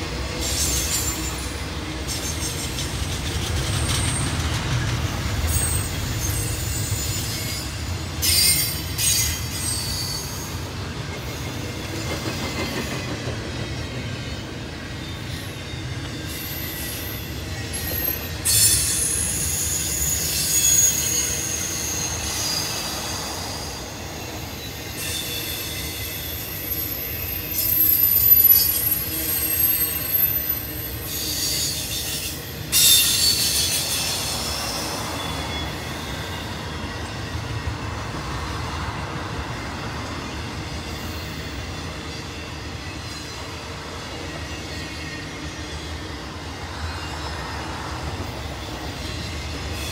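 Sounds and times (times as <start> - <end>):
train cars rumbling past: 0.0 - 49.9
high-pitched wheel squeal: 5.1 - 10.7, 15.1 - 37.4.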